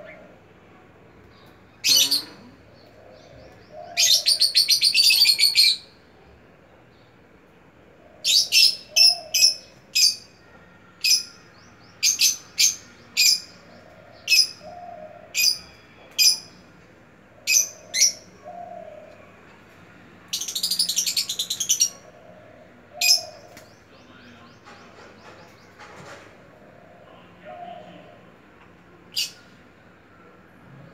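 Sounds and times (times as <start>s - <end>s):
lovebirds chirping: 20.3s - 26.0s.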